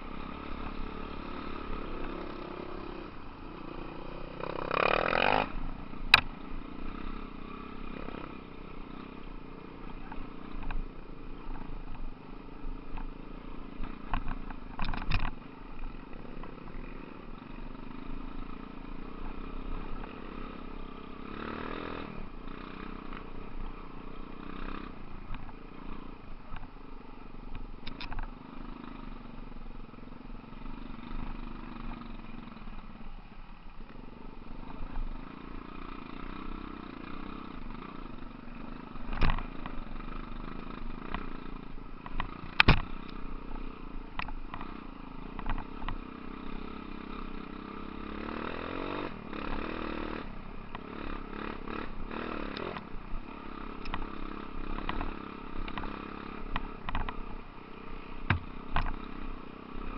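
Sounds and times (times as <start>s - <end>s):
dirt bike engines revving: 0.0s - 59.9s
clatters: 13.8s - 17.0s, 38.6s - 46.1s, 53.5s - 57.4s.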